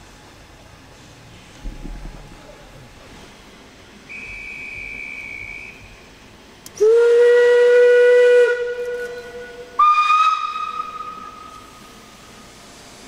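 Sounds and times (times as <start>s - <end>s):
faint high whistle tone: 4.1s - 5.9s
steam locomotive whistle blast: 4.1s - 6.0s, 6.8s - 11.8s
hiss of steam: 9.8s - 13.0s.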